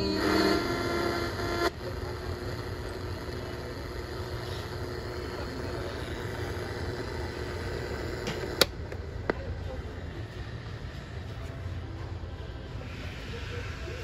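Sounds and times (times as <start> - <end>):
radio static: 0.0 - 8.7.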